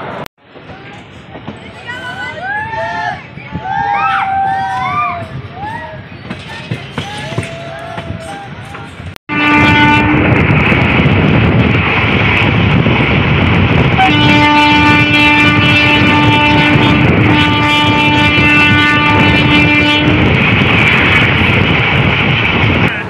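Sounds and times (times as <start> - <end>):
train horn blasts: 9.3 - 10.4, 14.0 - 20.4.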